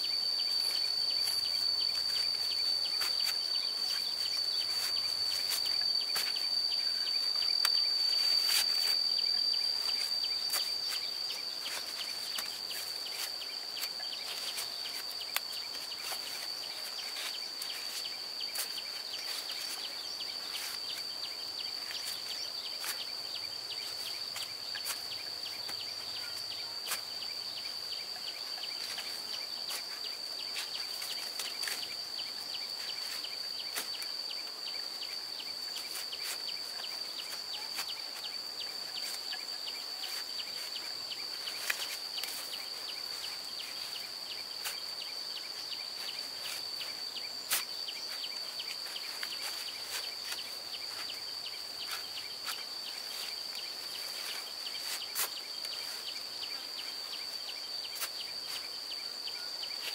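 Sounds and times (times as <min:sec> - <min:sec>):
insects singing high note: 0:00.0 - 0:57.2.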